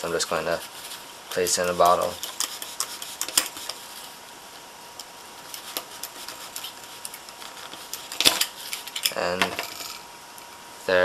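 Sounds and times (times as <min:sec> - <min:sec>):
knife scraping wooden dowel: 0:00.3 - 0:04.0, 0:05.4 - 0:09.1.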